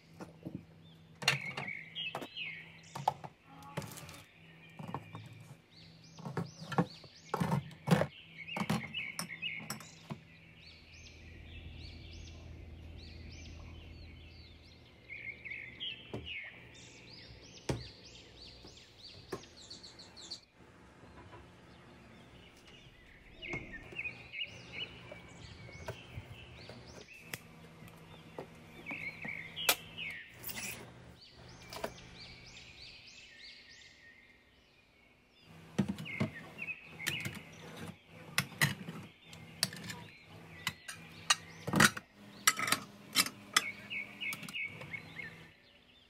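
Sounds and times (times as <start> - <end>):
birds chirping: 0.0 - 46.0.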